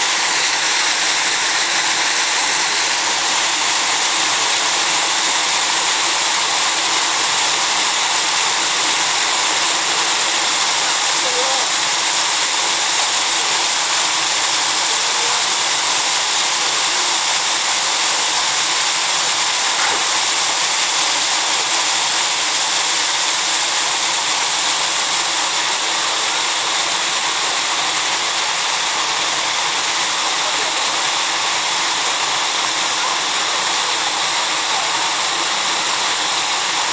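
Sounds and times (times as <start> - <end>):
water pouring into a pool: 0.0 - 36.9.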